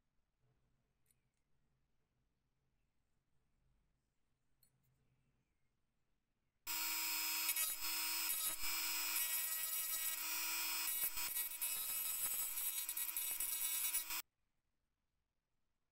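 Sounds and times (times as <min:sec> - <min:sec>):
abrasive point grinding steel: 0:06.7 - 0:14.2
rotary tool whining: 0:06.7 - 0:14.2.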